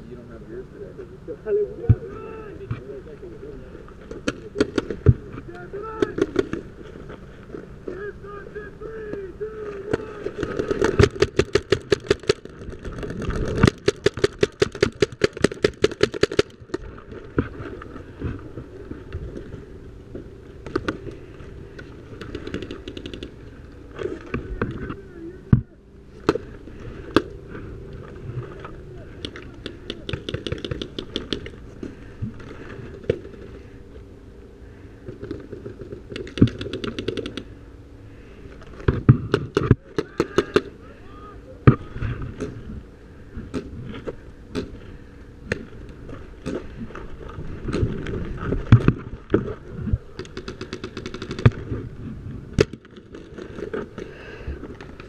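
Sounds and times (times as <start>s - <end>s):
paintball markers firing: 6.0s - 6.6s, 9.9s - 12.6s, 13.4s - 16.8s, 22.2s - 23.4s, 29.2s - 31.6s, 36.1s - 37.5s, 50.2s - 51.6s.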